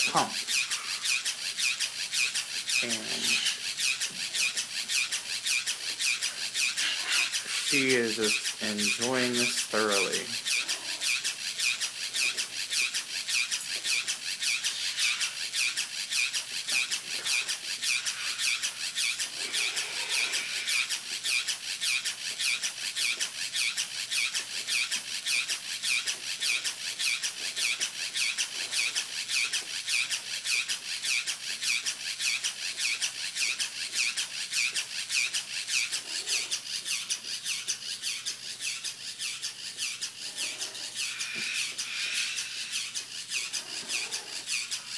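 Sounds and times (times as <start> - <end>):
sprayer pump pulsing: 0.0 - 44.9.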